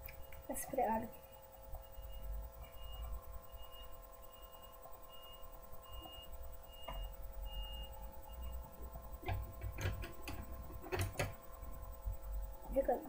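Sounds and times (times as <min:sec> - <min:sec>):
electrical hum: 0:00.0 - 0:13.0
small sharp clicks and knocks: 0:09.2 - 0:11.4.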